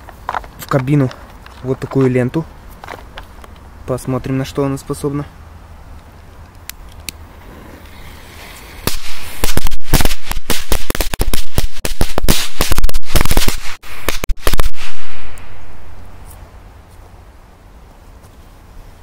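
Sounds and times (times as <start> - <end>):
firecrackers banging: 6.8 - 15.7
firecracker fuse hissing: 7.1 - 15.7.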